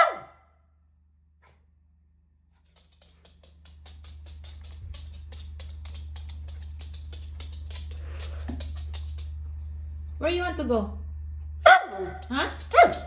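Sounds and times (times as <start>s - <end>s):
low hum: 2.3s - 13.0s
dog claws clicking on wooden floor: 2.6s - 9.4s, 11.9s - 13.0s.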